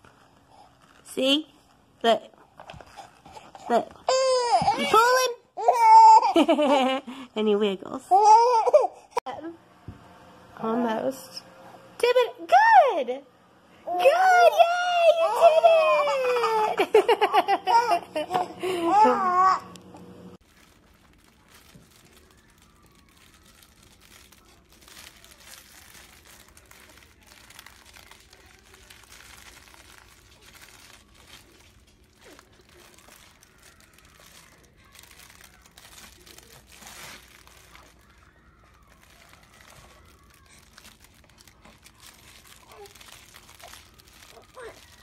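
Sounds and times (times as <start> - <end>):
fabric toys crinkling and rustling: 0.0 - 7.0, 20.4 - 45.0.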